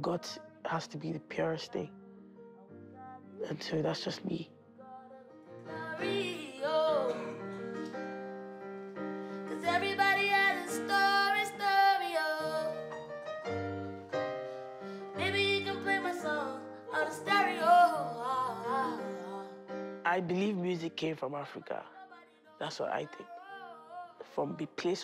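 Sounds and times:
woman singing with vibrato: 0:04.8 - 0:07.5, 0:09.5 - 0:12.9, 0:15.2 - 0:19.6.

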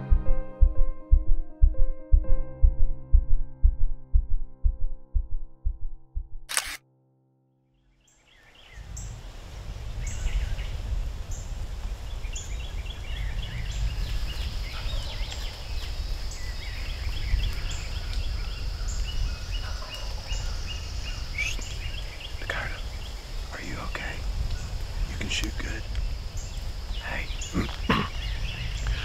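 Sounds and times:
music: 0:00.0 - 0:06.2
steady low rumble: 0:00.0 - 0:06.8, 0:08.6 - 0:15.0, 0:15.6 - 0:29.0
birds chirping: 0:08.0 - 0:29.0.

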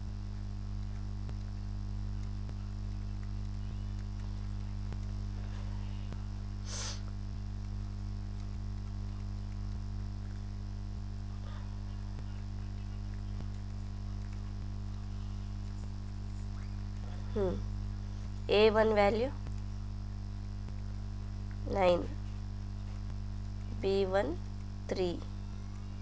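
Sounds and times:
low electrical hum: 0:00.0 - 0:26.0
brief hiss: 0:06.6 - 0:07.1
faint ticks: 0:07.0 - 0:10.6.

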